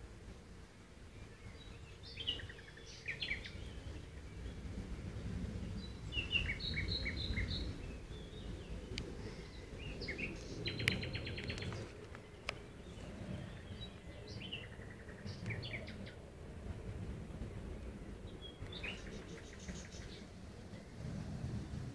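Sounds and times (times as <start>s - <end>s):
low rumble: 3.4s - 21.9s
birds chirping and calling: 5.8s - 16.2s, 18.3s - 20.3s.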